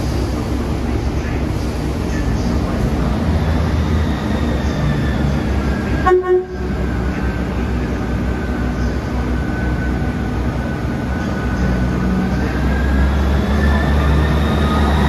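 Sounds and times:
train diesel engines rumbling: 0.0 - 15.0
train horn toot: 6.0 - 6.6.

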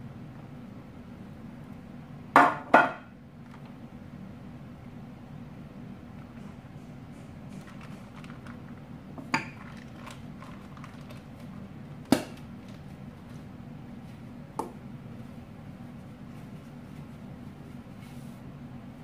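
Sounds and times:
steady low hum: 0.0 - 19.0
sharp knocks on kitchen counter: 2.4 - 3.1.

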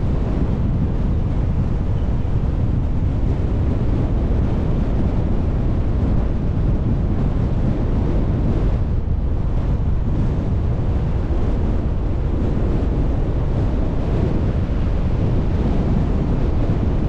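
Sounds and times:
car road and wind rumble: 0.0 - 17.0
wind buffeting microphone: 0.0 - 17.0.

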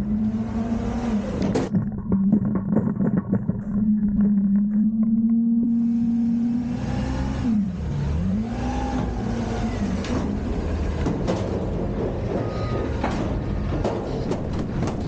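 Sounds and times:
truck engine and hydraulics: 0.0 - 1.7, 3.6 - 15.0
hydraulic whine: 3.8 - 10.5
metal clanks and knocks: 10.9 - 15.0.

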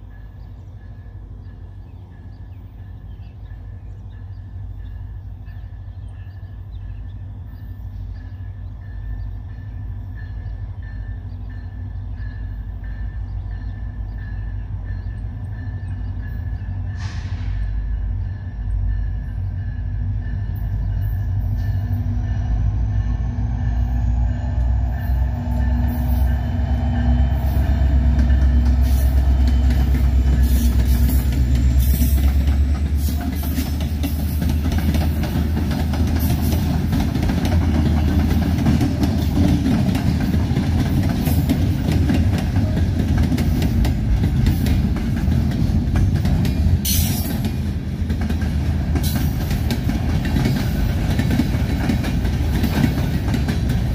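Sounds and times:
diesel locomotives rumbling: 0.0 - 53.9
freight cars clattering on rails: 25.2 - 53.9.

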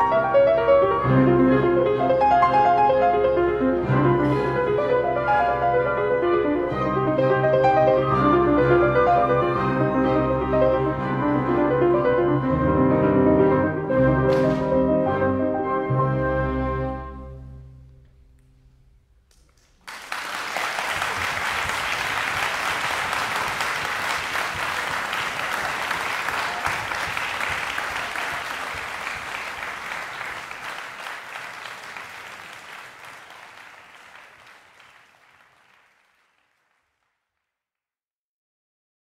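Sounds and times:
audience applause: 19.3 - 37.3.

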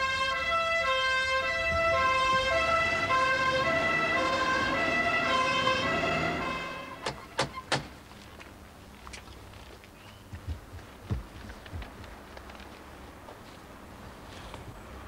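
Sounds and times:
two-tone emergency siren: 0.0 - 7.3.

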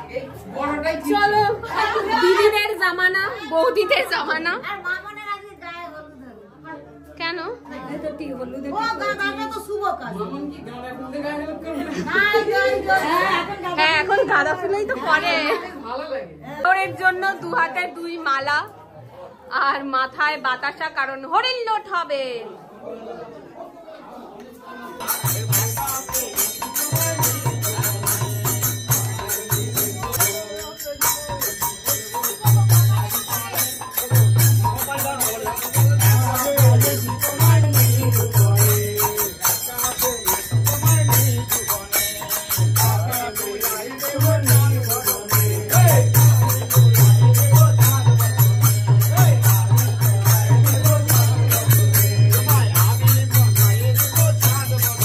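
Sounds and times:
group singing: 0.0 - 2.8, 11.4 - 15.6, 24.4 - 55.0
hand cymbals jingling: 25.0 - 55.0.

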